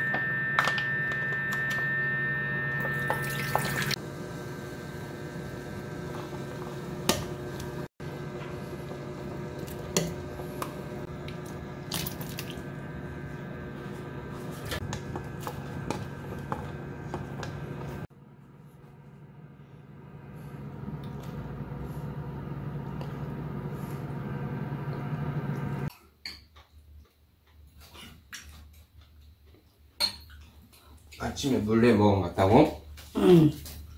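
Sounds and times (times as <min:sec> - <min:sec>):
induction hob hum: 0:00.0 - 0:25.9
soup boiling in a pot: 0:03.9 - 0:18.0.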